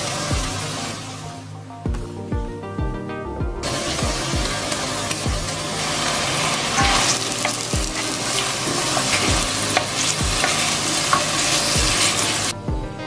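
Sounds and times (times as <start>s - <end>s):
bacon sizzling in oil: 3.7s - 12.5s
wooden spoon scraping a pan: 5.9s - 12.5s.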